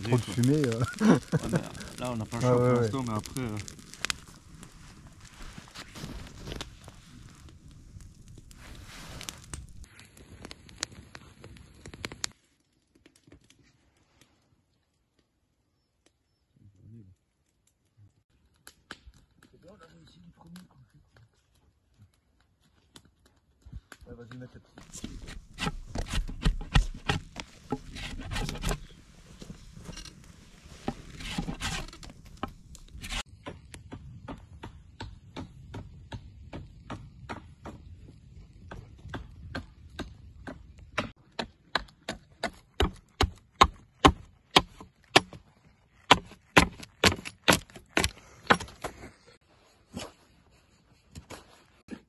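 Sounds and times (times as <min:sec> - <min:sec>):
sharp chopping strikes: 0:25.0 - 0:28.8, 0:46.1 - 0:48.8.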